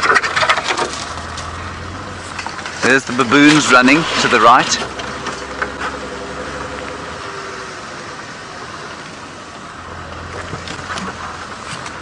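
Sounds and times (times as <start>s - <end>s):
vehicle engine rumbling: 0.0s - 12.0s.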